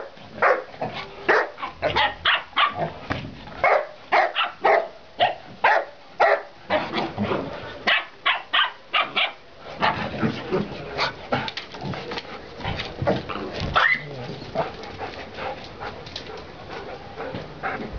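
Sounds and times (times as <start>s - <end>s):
dogs barking: 0.0s - 0.7s, 1.3s - 3.0s, 3.6s - 6.5s, 7.9s - 10.0s
dogs playing: 0.0s - 4.8s, 5.4s - 8.4s, 9.0s - 17.9s.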